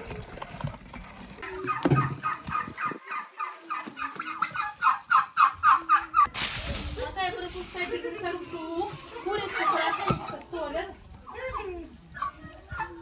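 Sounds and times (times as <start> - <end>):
poultry calling: 1.4 - 6.3.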